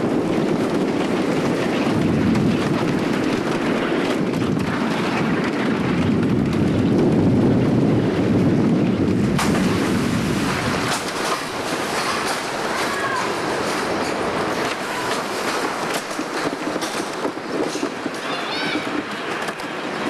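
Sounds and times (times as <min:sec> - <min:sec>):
roller coaster rumbling on wooden track: 0:00.0 - 0:20.0
train clattering: 0:00.0 - 0:20.0
wind buffeting microphone: 0:00.0 - 0:20.0.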